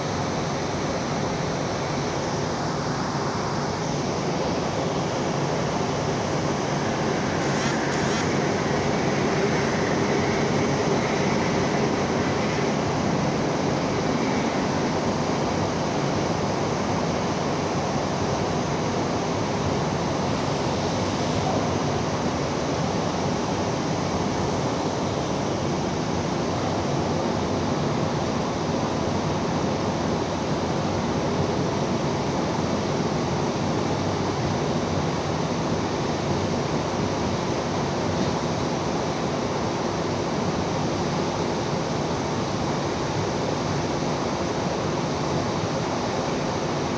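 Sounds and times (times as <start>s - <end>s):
rushing flame jet: 2.5s - 22.6s.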